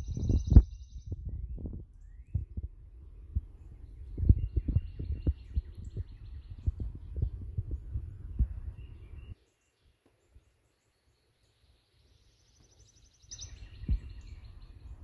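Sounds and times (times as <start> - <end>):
bird trill: 0.0 - 1.2, 8.7 - 15.0
low rumbling: 0.0 - 9.4
forest birds chirping: 0.0 - 15.0.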